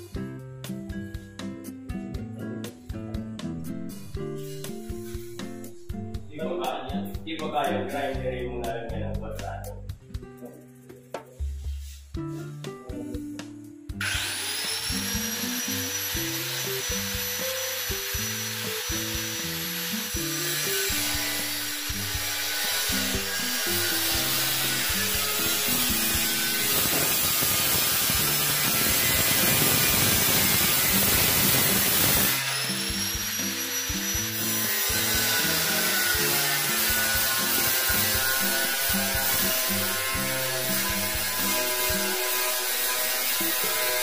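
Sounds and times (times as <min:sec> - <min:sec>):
background music: 0:00.0 - 0:44.0
angle grinder cutting steel: 0:14.0 - 0:44.0.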